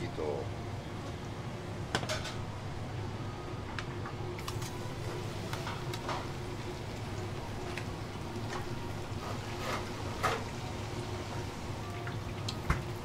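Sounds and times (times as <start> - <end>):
kitchen fan hum: 0.0 - 13.0
batter hissing in hot oil: 4.4 - 13.0.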